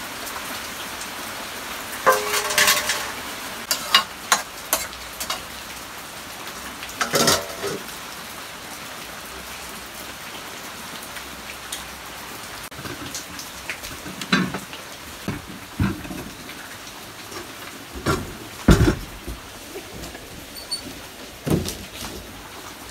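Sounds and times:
rain on a roof: 0:00.0 - 0:22.9
pots clattering: 0:02.0 - 0:05.6, 0:07.0 - 0:07.9, 0:12.7 - 0:22.4
pan knocks: 0:02.1 - 0:03.2, 0:15.2 - 0:16.4, 0:18.0 - 0:20.2.

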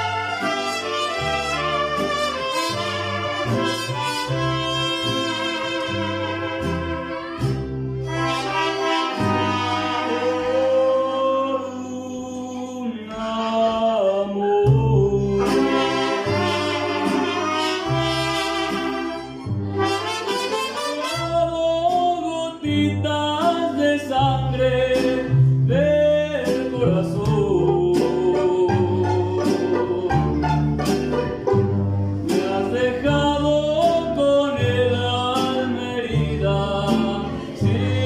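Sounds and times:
trumpets playing melody: 0:00.0 - 0:11.0, 0:15.3 - 0:21.7, 0:28.4 - 0:32.0
strummed guitars: 0:00.0 - 0:12.0, 0:14.7 - 0:38.0
plucked bass line: 0:01.2 - 0:09.7, 0:14.6 - 0:20.0, 0:21.2 - 0:38.0.

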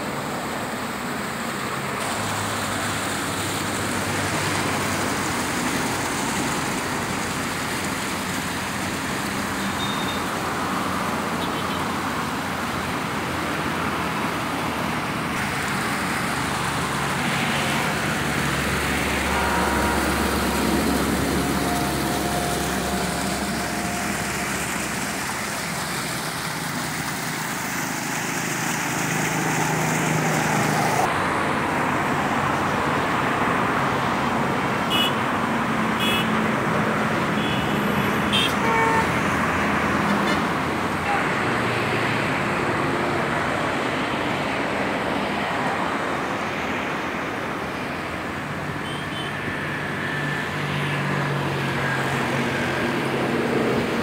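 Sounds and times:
fountain water splashing: 0:00.0 - 0:51.2.

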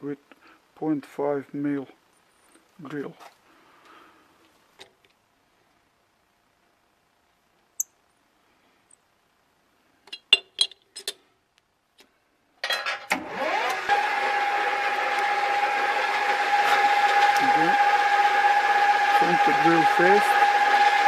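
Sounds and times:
lathe motor whining and humming: 0:13.1 - 0:21.0.

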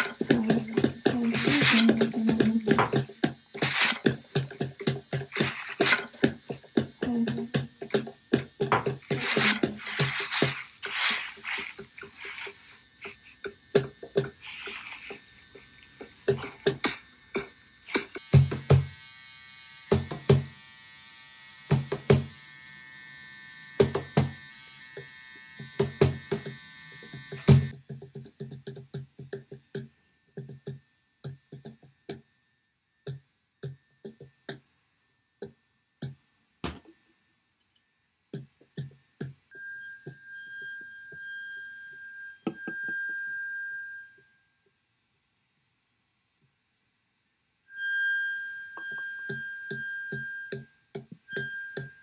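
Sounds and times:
sharp taps and knocks: 0:00.0 - 0:10.7.

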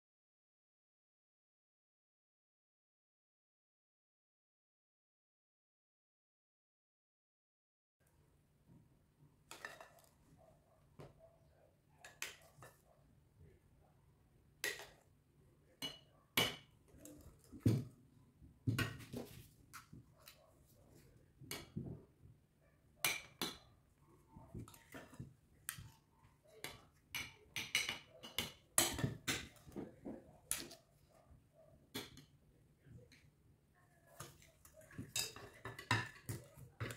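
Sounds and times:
utensils and dishes clinking: 0:34.8 - 0:36.9.

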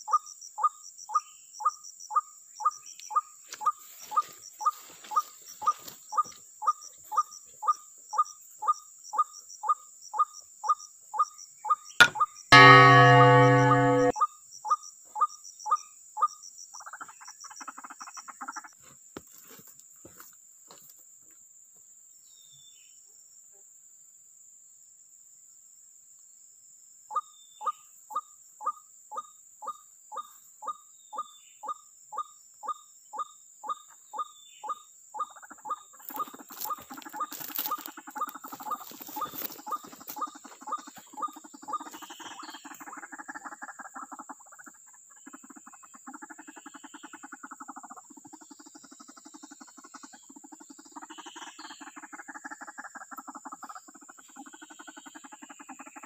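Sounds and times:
repeated single bird notes: 0:12.0 - 0:14.1.

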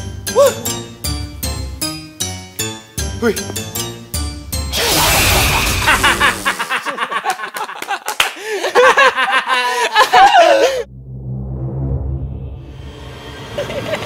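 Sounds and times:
young men laughing loudly: 0:04.8 - 0:10.9, 0:13.6 - 0:14.0
low ominous drone: 0:10.9 - 0:14.0.

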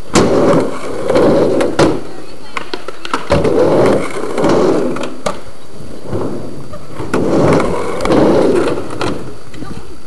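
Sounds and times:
skateboard clacks: 0:00.0 - 0:05.6
skateboard wheels rolling on ramp: 0:00.0 - 0:10.0.

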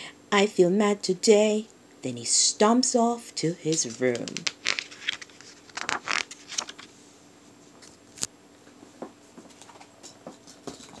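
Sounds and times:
paper page rustling: 0:03.8 - 0:07.0.

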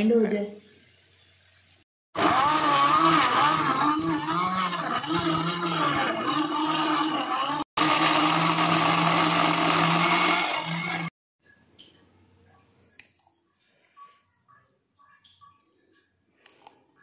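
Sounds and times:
electric blender running: 0:02.1 - 0:11.2.

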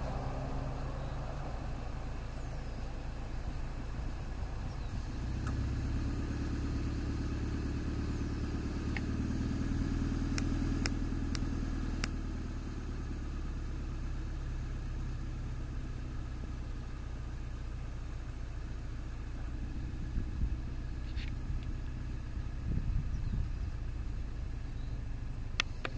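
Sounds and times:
traffic background drone: 0:00.0 - 0:25.9
vehicle engine rumble: 0:00.0 - 0:25.9
sharp clicks: 0:10.3 - 0:12.2.

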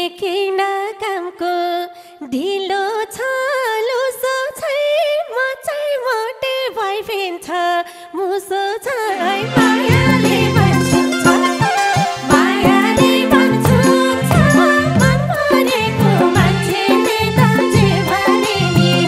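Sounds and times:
woman singing unaccompanied: 0:00.0 - 0:19.0
band with drums: 0:09.6 - 0:19.0.

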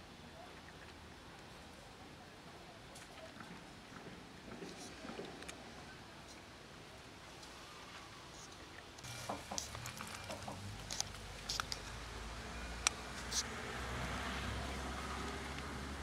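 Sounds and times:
cat crunching dry kibble: 0:09.6 - 0:12.0.

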